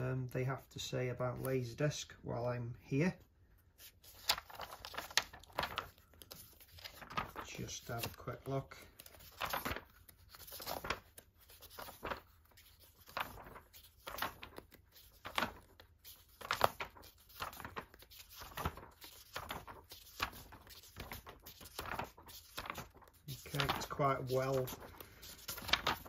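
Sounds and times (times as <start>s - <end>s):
magazine pages turning: 3.7s - 26.0s.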